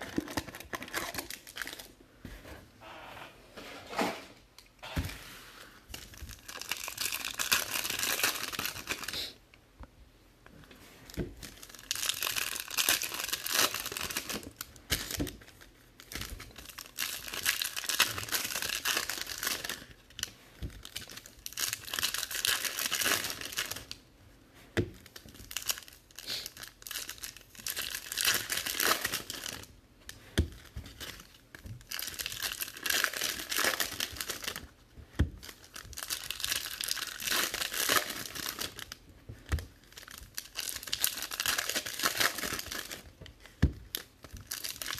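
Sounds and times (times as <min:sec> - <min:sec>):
foil wrappers crinkling and tearing: 0:00.0 - 0:02.0, 0:05.9 - 0:09.4, 0:11.4 - 0:24.0, 0:25.0 - 0:44.9.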